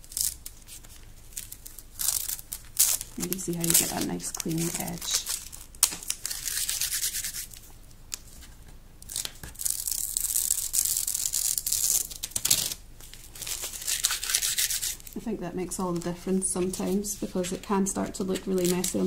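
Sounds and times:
masking tape peeling: 0.0 - 8.3, 9.0 - 15.2, 18.4 - 19.0.

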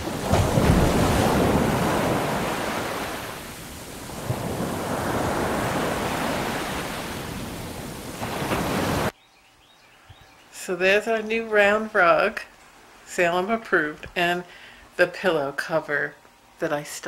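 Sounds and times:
ocean waves washing in: 0.0 - 9.1.

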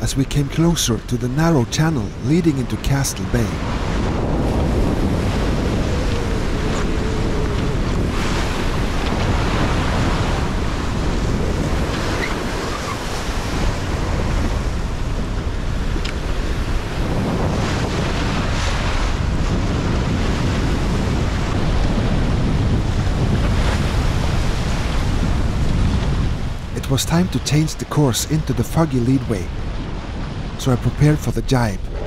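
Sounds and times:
strong wind buffeting microphone: 0.0 - 32.0
water splashing along boat hull: 3.6 - 26.7.

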